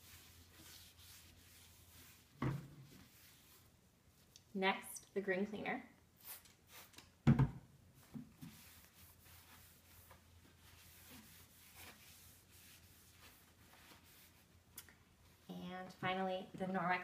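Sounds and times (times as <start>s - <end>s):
paper towel rubbing countertop: 0.0s - 3.7s, 8.3s - 14.5s.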